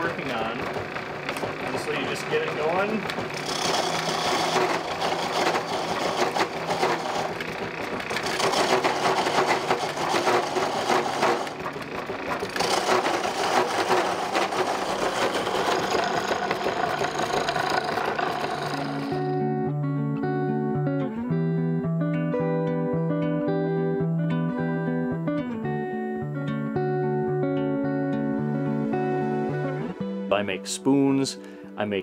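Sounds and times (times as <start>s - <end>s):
treadle lathe clattering: 0.0s - 19.4s
turning tool cutting wood: 0.0s - 19.4s.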